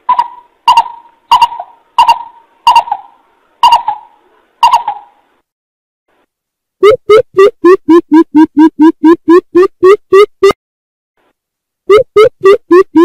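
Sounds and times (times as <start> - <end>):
coucal hooting call: 0.1 - 5.2.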